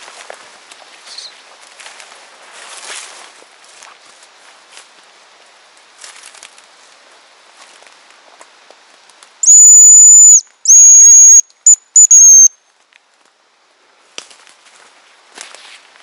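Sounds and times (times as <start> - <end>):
faint rustling of leaf litter: 0.0 - 9.4, 12.6 - 16.0
decoy whistle: 9.4 - 12.6.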